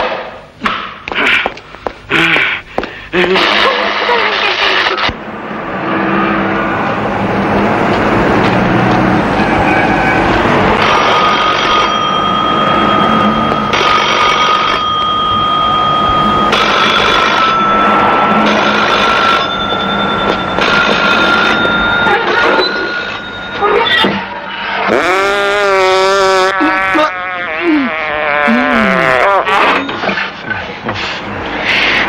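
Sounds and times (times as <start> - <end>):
noisy background: 0.0 - 32.0
bell-like ringing: 10.8 - 24.8.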